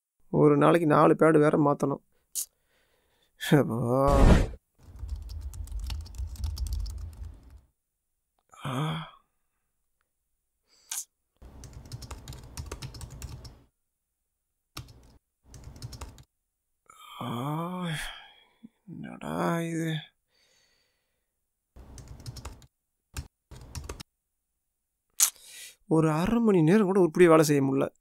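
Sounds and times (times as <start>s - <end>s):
laptop keyboard typing: 4.8s - 7.6s, 11.5s - 13.6s, 14.8s - 16.3s, 21.8s - 24.0s
person sighing: 8.5s - 9.3s, 16.9s - 18.8s.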